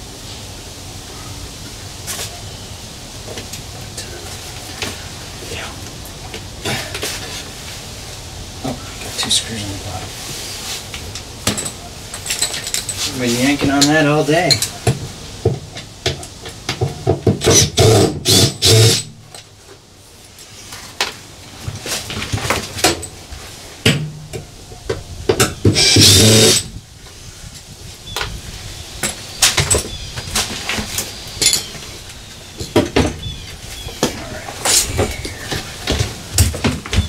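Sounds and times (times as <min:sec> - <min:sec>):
cordless drill bursts: 0:17.4 - 0:19.2, 0:25.8 - 0:26.7.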